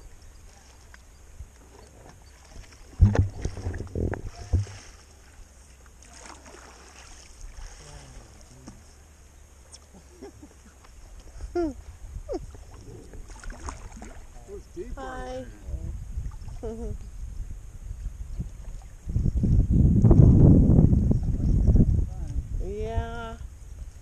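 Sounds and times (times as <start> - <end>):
kayak paddling on water: 0.0 - 24.0
paddle knocking against kayak hull: 3.0 - 5.0.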